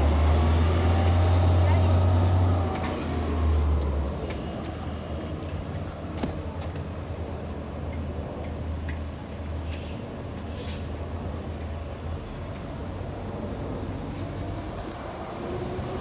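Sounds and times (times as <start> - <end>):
bus engine rumbling: 0.0 - 16.0.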